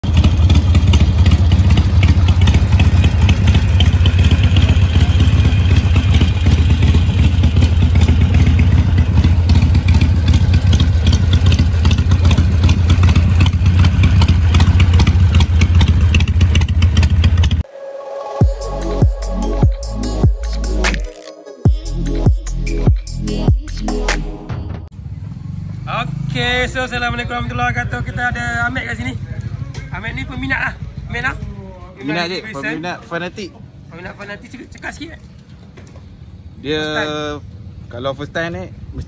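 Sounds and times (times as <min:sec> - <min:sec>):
motorcycle engine idling: 0:00.0 - 0:17.6, 0:25.0 - 0:32.5.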